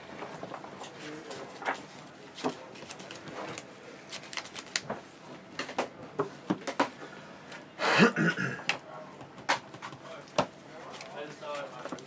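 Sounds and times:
trading cards shuffled: 1.6s - 5.0s.

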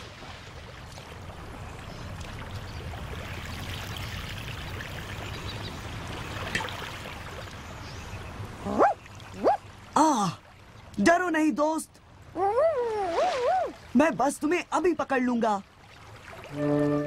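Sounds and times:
cartoon floodwater running: 8.4s - 17.0s
cartoon dog yelp: 8.7s - 9.6s.

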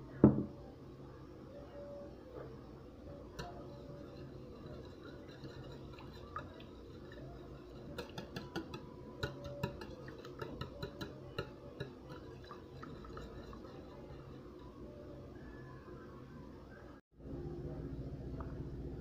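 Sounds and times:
faint steady hum: 0.0s - 19.0s
whisk clicking against bowl: 3.4s - 14.7s.

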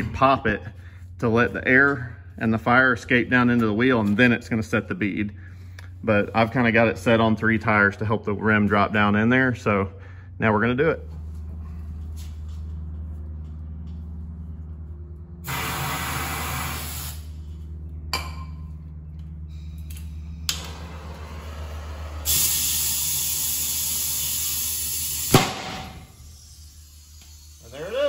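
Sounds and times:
steady low hum: 0.0s - 28.0s
compressed air and torch hissing: 15.4s - 17.3s, 20.6s - 28.0s
hissing spray: 15.5s - 17.3s, 21.5s - 28.0s
sharp bang of vapour igniting: 25.2s - 26.1s.

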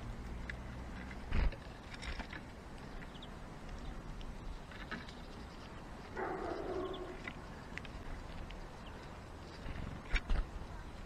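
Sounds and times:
rustling noise: 0.9s - 11.0s
high bird chirps: 6.2s - 7.3s.

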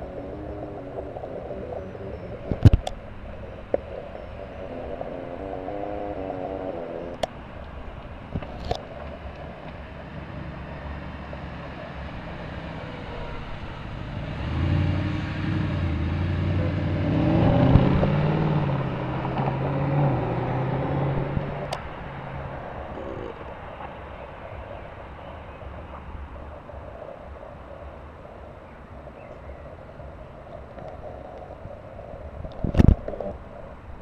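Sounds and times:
car engine accelerating past: 10.1s - 23.0s.

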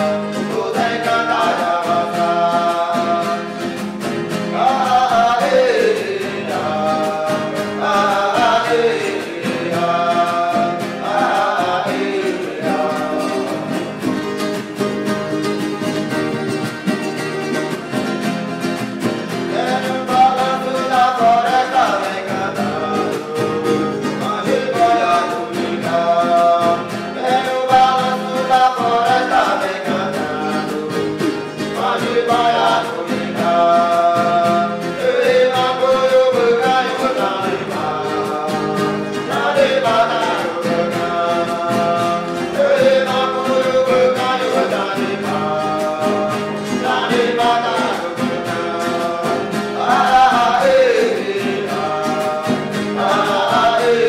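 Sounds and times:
group of voices chanting: 0.0s - 14.2s, 19.5s - 54.0s
strummed acoustic guitars: 0.0s - 54.0s.

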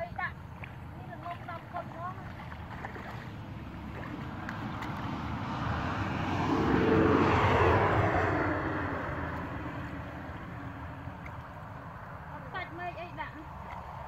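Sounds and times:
engine passing by: 0.6s - 14.0s.

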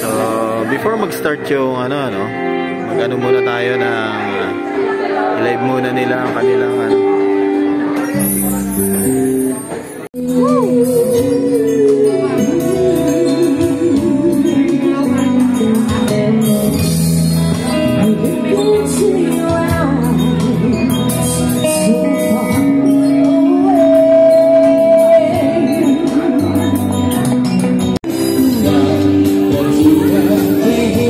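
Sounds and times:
electric guitar: 0.0s - 31.0s
keyboard: 0.0s - 31.0s
person singing with vibrato: 10.2s - 16.0s, 16.8s - 31.0s
electric bass: 10.2s - 31.0s.

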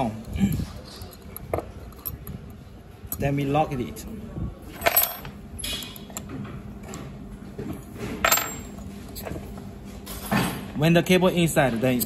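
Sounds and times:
metal tools clinking on metal: 4.7s - 6.3s, 8.1s - 9.4s.

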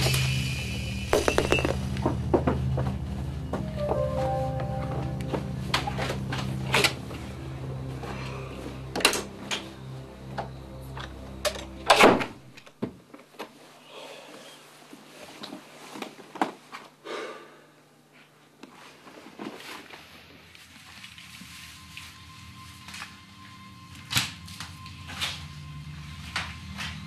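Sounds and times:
background music: 0.0s - 12.8s.

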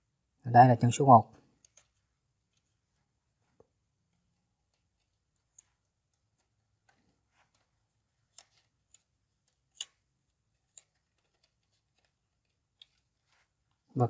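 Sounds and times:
wires tapping plastic switch plates: 1.5s - 2.7s, 3.6s - 13.1s.

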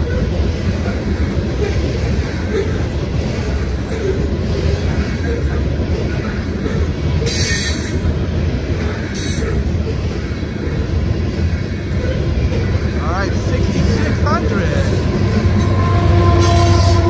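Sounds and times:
train wheels rumbling on rail: 0.0s - 17.0s
high-pitched wheel squeals: 15.6s - 17.0s.

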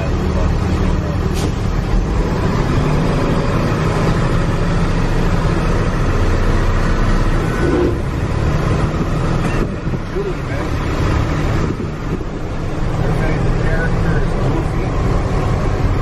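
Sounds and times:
truck engine hum: 0.0s - 16.0s
tyres rushing on road: 0.0s - 16.0s
wind noise: 7.5s - 10.2s.

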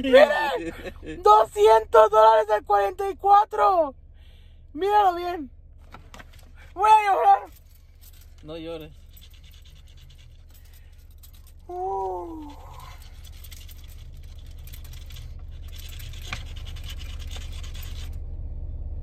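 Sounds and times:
low hum inside car: 0.0s - 19.0s
lottery ticket being scratched: 6.8s - 10.6s, 11.2s - 18.2s.

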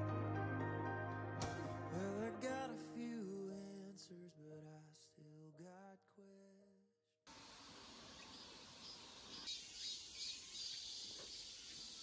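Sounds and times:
background song with sung note: 0.0s - 5.8s
faint insect chorus: 7.3s - 12.0s
soft outdoor hiss: 7.3s - 12.0s.

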